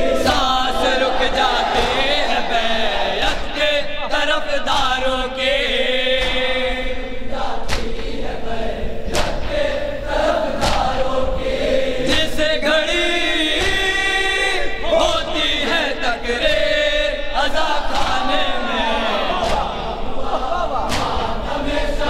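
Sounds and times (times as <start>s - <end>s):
men chanting in unison: 0.0s - 22.0s
person reciting into a microphone: 0.0s - 22.0s
chest-beating slaps: 6.1s - 6.6s, 7.6s - 8.2s, 9.1s - 9.6s, 10.5s - 11.5s, 17.9s - 18.2s, 19.3s - 21.5s.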